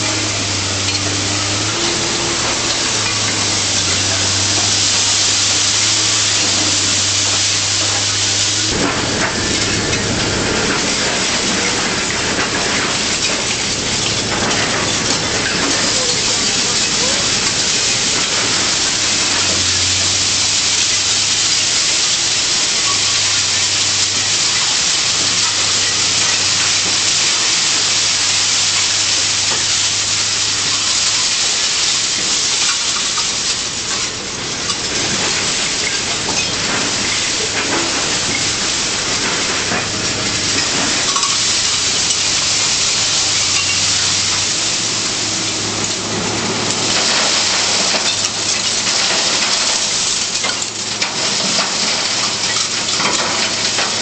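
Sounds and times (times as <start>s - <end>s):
low machine hum: 0.0s - 22.1s
shredded material pouring into container: 0.0s - 54.0s.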